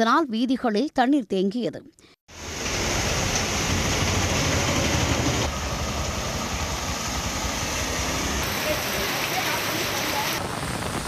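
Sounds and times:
low engine rumble: 2.3s - 11.0s
vehicles splashing through water: 2.3s - 11.0s.

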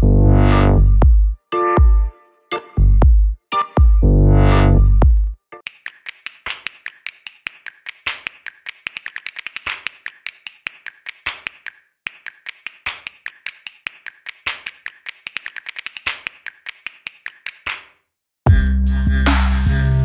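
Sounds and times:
sharp light clicks and taps: 5.7s - 17.8s.

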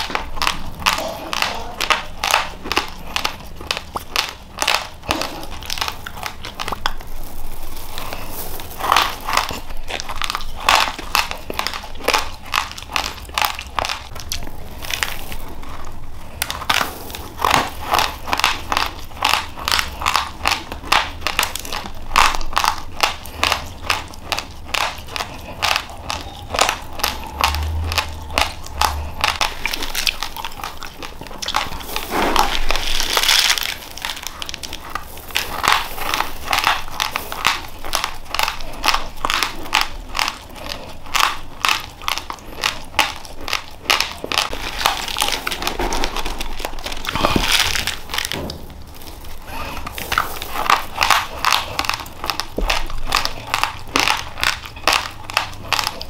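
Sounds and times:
crunching of chewed rice: 0.0s - 56.0s
rustling of plastic sack: 7.0s - 9.9s, 44.6s - 51.3s.

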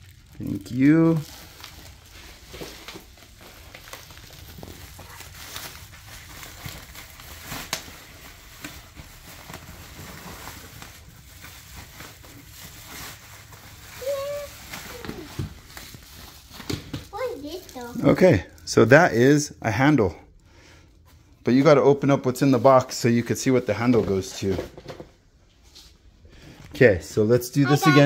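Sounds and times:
bubble wrap rustling and crinkling: 0.0s - 18.8s.

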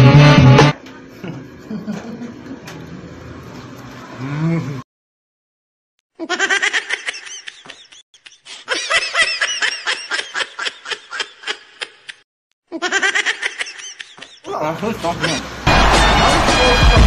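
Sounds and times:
person laughing: 1.2s - 2.4s, 6.2s - 14.5s, 15.1s - 15.4s.

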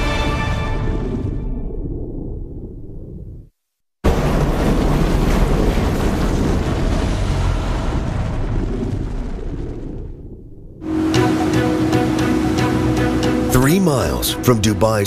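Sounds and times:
boat running over water: 4.1s - 9.9s, 10.8s - 15.0s.

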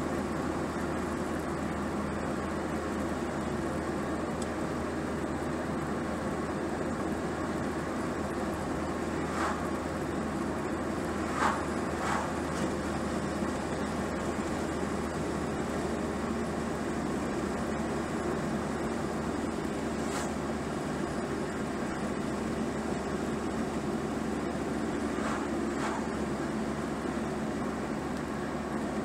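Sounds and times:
car road and engine noise: 0.0s - 29.0s
vehicles swishing past: 9.1s - 9.9s, 11.0s - 13.0s, 20.0s - 20.4s, 24.9s - 26.4s.

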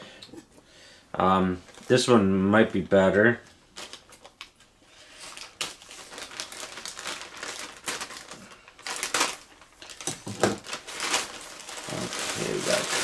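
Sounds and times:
packaging crinkling and rustling: 1.6s - 2.1s, 3.3s - 13.0s.

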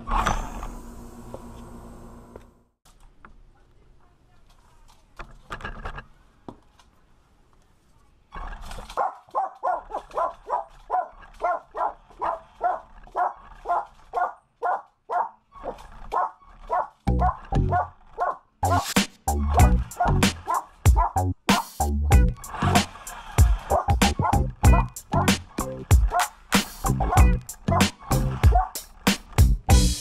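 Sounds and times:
dog barking rapidly: 9.0s - 18.8s, 19.6s - 21.7s, 23.6s - 25.4s, 26.0s - 26.4s, 27.0s - 28.8s.

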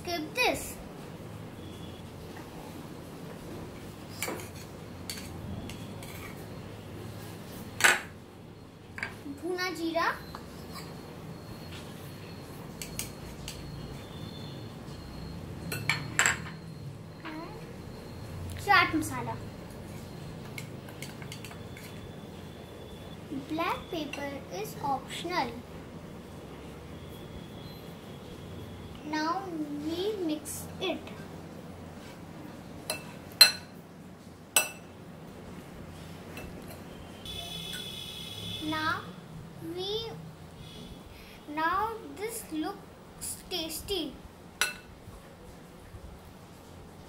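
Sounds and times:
spoon clinking glass bowl: 15.7s - 16.6s, 32.9s - 33.7s, 34.6s - 34.9s, 44.6s - 44.9s.

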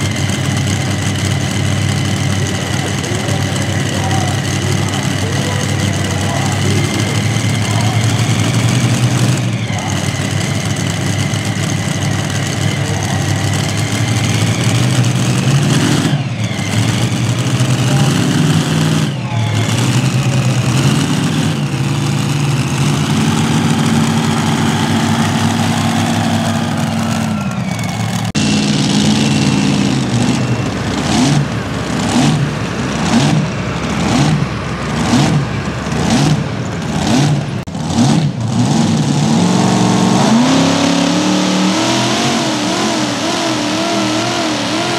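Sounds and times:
truck engine running hard: 0.0s - 44.9s.

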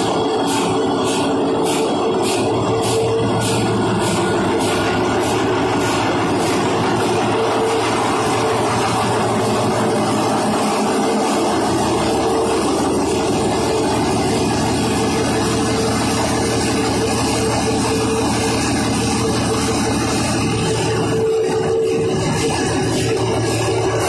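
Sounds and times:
marine diesel engine running: 0.0s - 24.0s.

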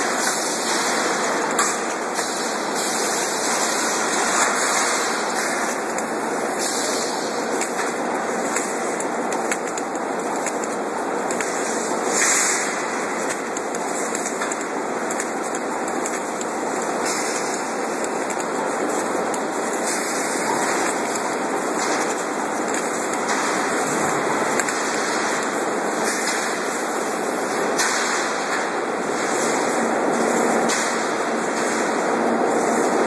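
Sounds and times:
welding machine hissing: 0.0s - 33.0s.

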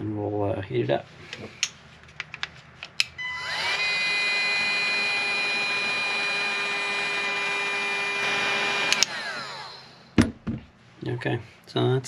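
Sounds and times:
heat gun fan whining: 3.0s - 10.6s.

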